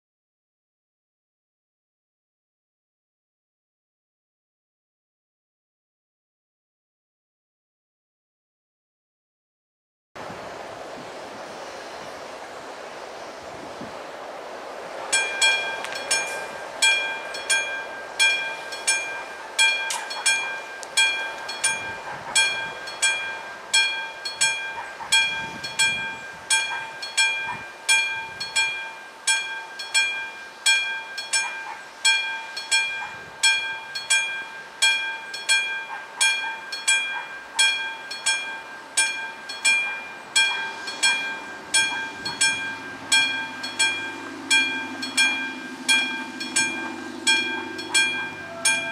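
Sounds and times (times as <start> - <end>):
level crossing warning bell: 15.1 - 48.9.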